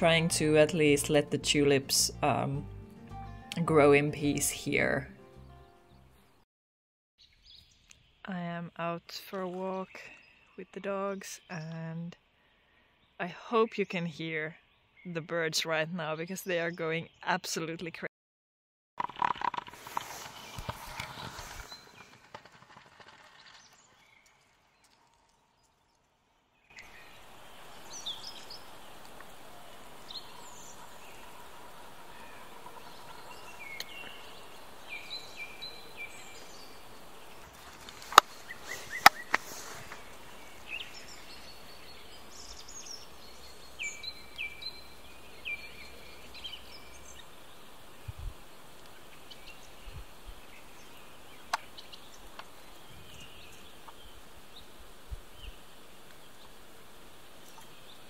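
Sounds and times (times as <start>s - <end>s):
birds chirping and whistling: 32.1s - 37.4s, 38.2s - 47.2s.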